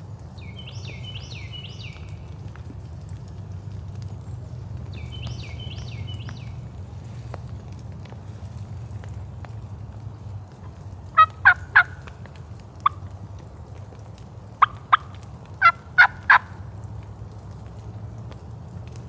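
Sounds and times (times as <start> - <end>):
turkey yelping: 11.2 - 12.0, 14.6 - 16.6.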